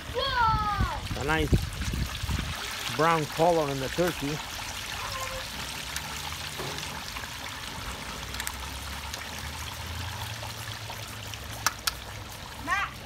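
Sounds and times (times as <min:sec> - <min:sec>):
oil sizzling and bubbling: 0:00.0 - 0:13.0.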